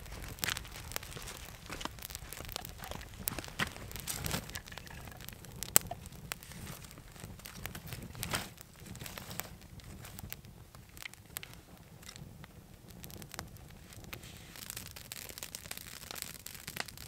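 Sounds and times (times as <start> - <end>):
sticks laid on fire rustling: 0.0 - 12.5
campfire crackling and popping: 0.0 - 17.0.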